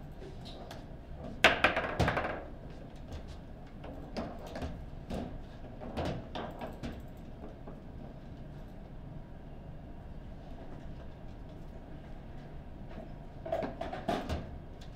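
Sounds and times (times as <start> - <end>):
foosball table knocks and clacks: 1.4 - 2.6.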